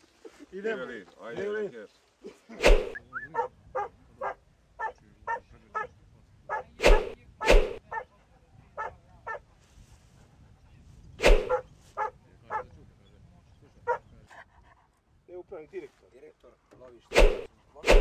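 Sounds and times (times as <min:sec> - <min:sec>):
dog barking loudly: 0:03.4 - 0:05.9, 0:11.2 - 0:12.6.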